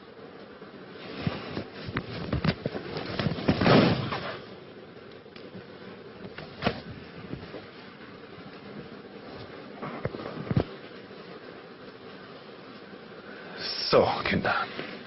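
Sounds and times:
objects banging and thumping: 1.2 - 4.4
loud crash: 3.5 - 4.4.

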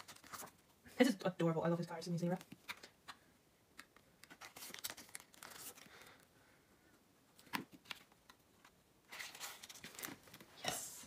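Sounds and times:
plastic sleeves crinkling: 3.8 - 6.2, 7.4 - 10.7.

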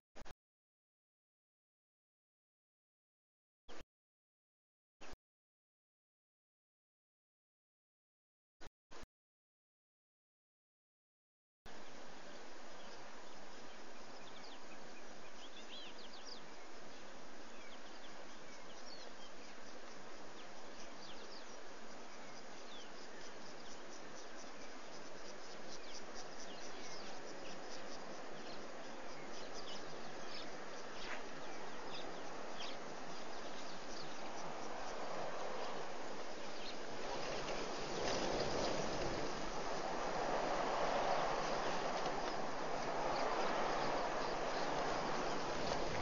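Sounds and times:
steady hiss: 11.7 - 46.0
insect calls: 12.3 - 46.0
small bird chirps: 12.8 - 34.8.

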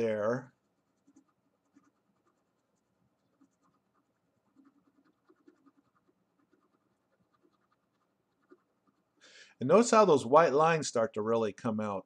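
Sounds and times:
pencil scratching on paper: 0.0 - 9.2.

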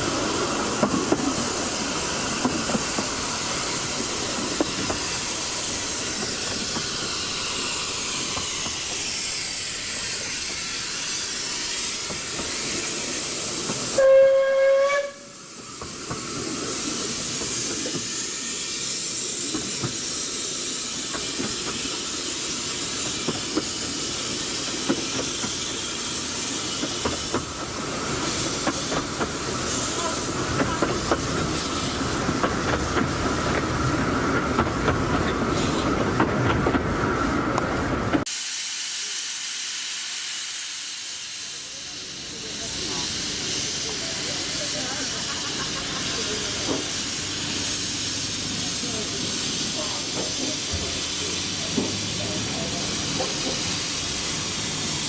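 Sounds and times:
train wheels clicking on rails: 0.0 - 14.0, 15.4 - 38.3, 41.8 - 55.0
steam locomotive hissing steam: 0.0 - 55.0
train whistle blast: 13.9 - 15.4.

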